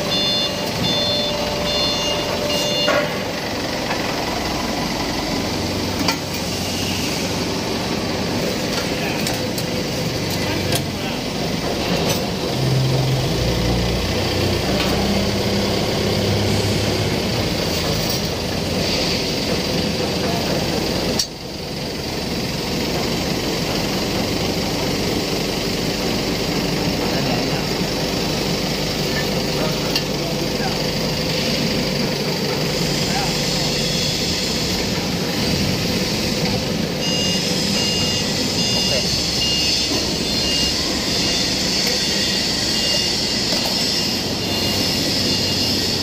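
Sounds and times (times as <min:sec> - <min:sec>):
short high beeps: 0:00.0 - 0:03.3, 0:37.0 - 0:46.0
workshop machinery drone: 0:00.0 - 0:46.0.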